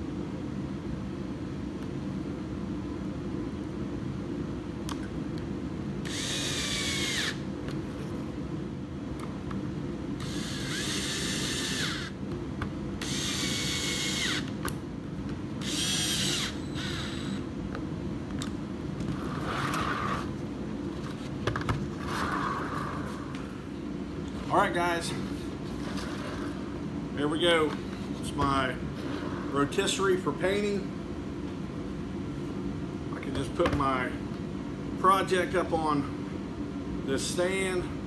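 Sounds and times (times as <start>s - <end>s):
cordless drill whirring: 6.0s - 7.4s, 10.2s - 12.2s, 13.0s - 14.5s, 15.6s - 17.4s.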